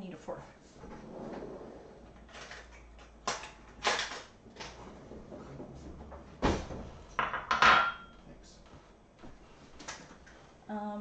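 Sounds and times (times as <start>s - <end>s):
deep thump: 6.4s - 6.9s
kitchen items knocking on counter: 7.2s - 8.1s.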